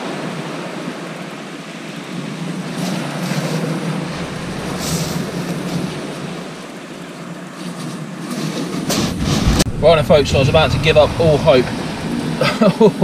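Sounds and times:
wind buffeting microphone: 2.6s - 7.1s, 8.6s - 13.0s.

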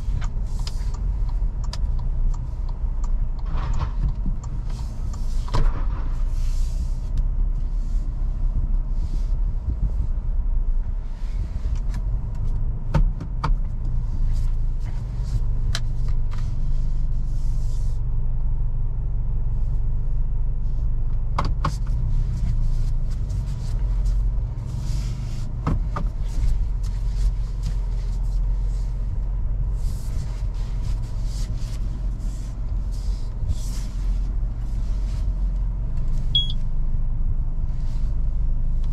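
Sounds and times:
car engine and road rumble: 0.0s - 38.9s
sharp knocks from road bumps: 12.9s - 13.8s, 25.5s - 28.2s.

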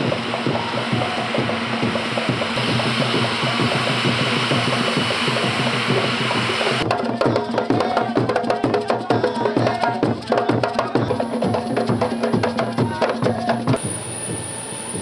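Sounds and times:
thin high whine: 0.0s - 6.8s
mechanical hum: 0.0s - 6.9s, 9.8s - 15.0s
hand drums playing fast rhythm: 0.0s - 13.8s.

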